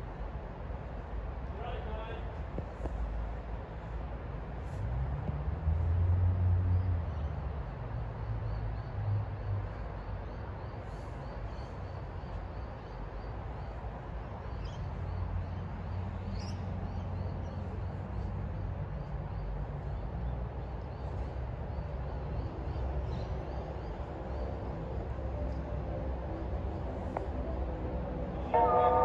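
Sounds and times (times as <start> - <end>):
faint high repeating call: 28.3 - 29.0.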